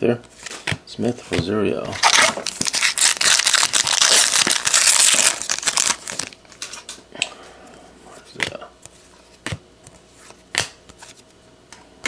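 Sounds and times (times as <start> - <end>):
foil wrapper crinkling and tearing: 2.0 - 6.4.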